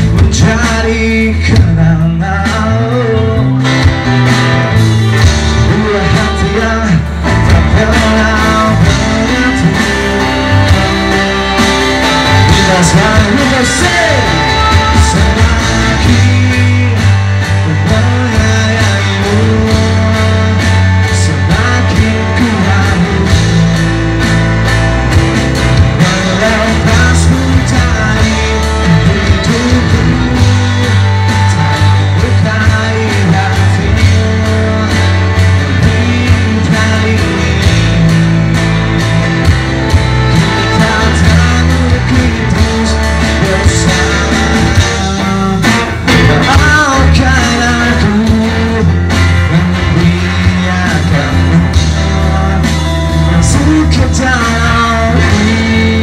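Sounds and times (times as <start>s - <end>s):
man singing: 0.0s - 24.4s, 25.1s - 56.0s
drums: 0.0s - 56.0s
electric guitar: 0.0s - 56.0s
saxophone: 10.3s - 16.3s.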